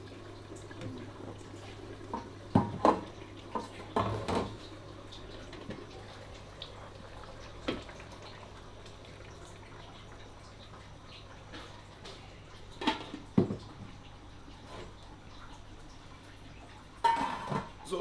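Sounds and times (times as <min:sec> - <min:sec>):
metal pots and lids clinking: 0:17.0 - 0:17.7.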